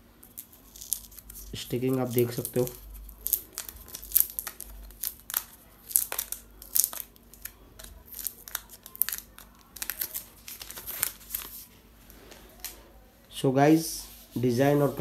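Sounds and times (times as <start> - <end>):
plastic film crinkling: 0.1 - 12.8.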